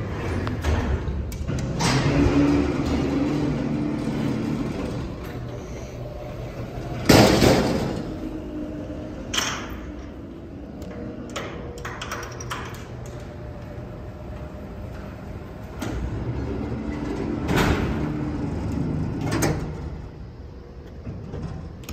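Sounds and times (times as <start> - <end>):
elevator gate rumbling slide: 0.0 - 21.9
elevator door bang: 6.8 - 8.4.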